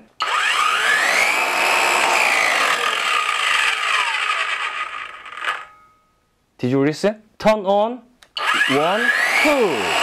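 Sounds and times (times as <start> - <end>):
circular saw whine: 0.2 - 6.0, 8.4 - 10.0.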